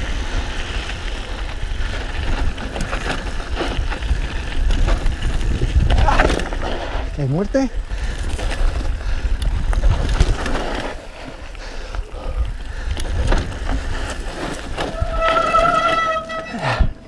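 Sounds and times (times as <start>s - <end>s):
wind buffeting microphone: 0.0s - 15.8s
bike rattling and clicking: 0.0s - 17.0s
tyres rolling over dirt: 0.0s - 17.0s
high-pitched squeal: 14.9s - 16.8s.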